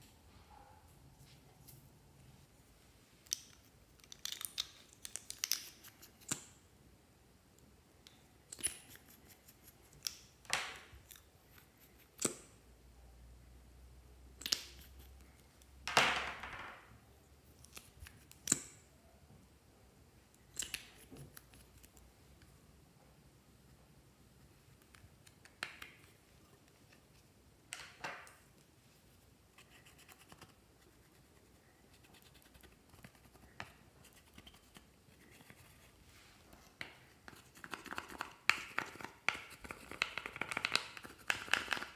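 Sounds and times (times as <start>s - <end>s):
plastic caps clicking: 37.6s - 41.9s.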